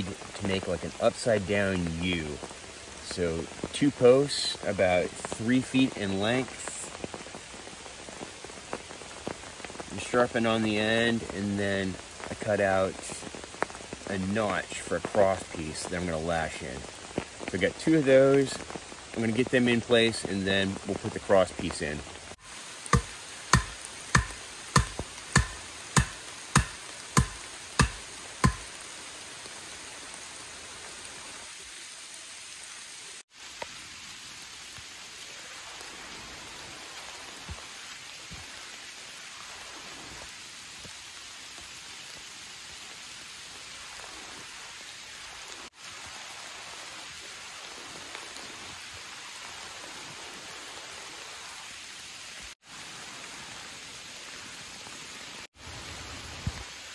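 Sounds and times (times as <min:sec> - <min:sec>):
rain pattering: 0:00.0 - 0:56.9
wooden post pounded into ground: 0:23.0 - 0:28.7.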